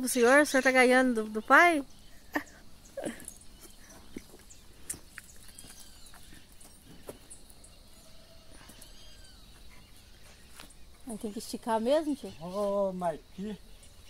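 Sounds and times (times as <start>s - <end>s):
faint bird chirps: 0.0s - 14.0s.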